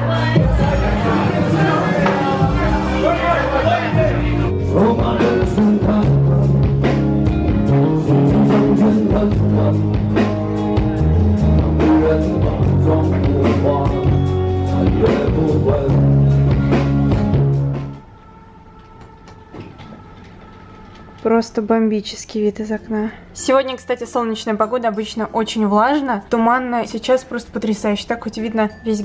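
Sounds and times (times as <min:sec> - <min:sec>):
acoustic guitar: 0:00.0 - 0:18.0
bass guitar: 0:00.0 - 0:18.0
drum kit beat: 0:00.0 - 0:18.0.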